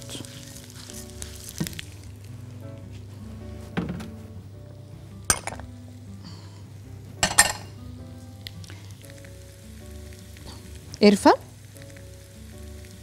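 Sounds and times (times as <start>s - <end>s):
rice sizzling in oil: 0.0s - 3.3s, 5.8s - 13.0s
soft background music: 0.0s - 13.0s.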